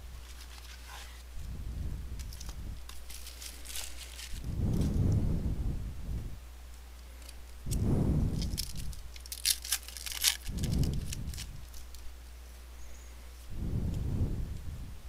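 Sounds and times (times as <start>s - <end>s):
foil wrapper tearing: 2.2s - 4.5s, 8.3s - 12.1s.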